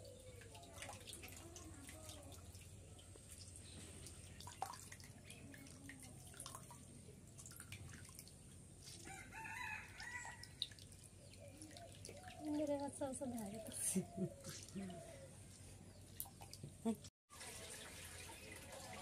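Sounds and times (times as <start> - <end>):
water drips and splashes: 0.0 - 15.2, 15.9 - 19.0
chicken crowing: 9.1 - 10.5.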